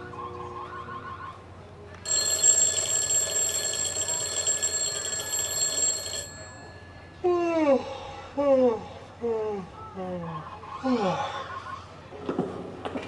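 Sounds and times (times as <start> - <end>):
electric bell ringing: 2.1 - 7.2.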